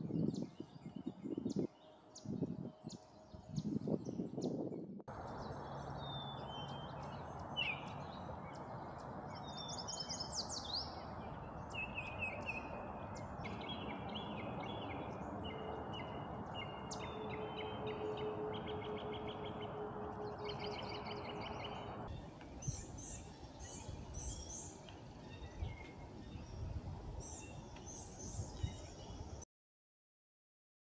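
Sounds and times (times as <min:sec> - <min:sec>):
songbirds singing: 0:00.0 - 0:29.4
low rushing noise: 0:11.0 - 0:23.0.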